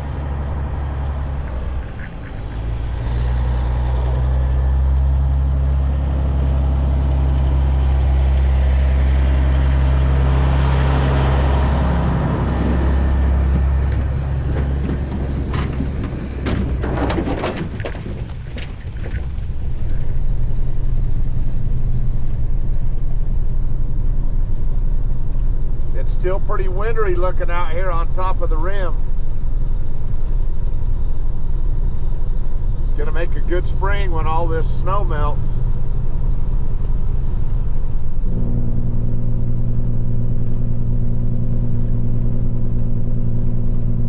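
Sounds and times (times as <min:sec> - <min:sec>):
engine and road drone in cab: 0:00.0 - 0:44.0
truck engine passing: 0:00.0 - 0:44.0
sharp clicks and knocks: 0:13.5 - 0:20.0.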